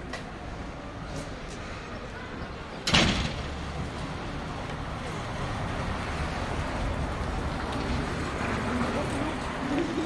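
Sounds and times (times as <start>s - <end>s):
road traffic hum: 0.0s - 10.0s.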